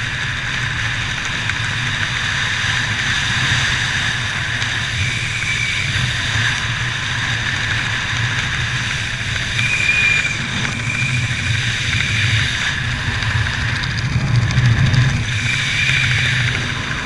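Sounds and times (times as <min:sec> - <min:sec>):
wind rushing over microphone: 0:00.0 - 0:17.0
faint whistle: 0:05.0 - 0:06.4, 0:09.5 - 0:11.6.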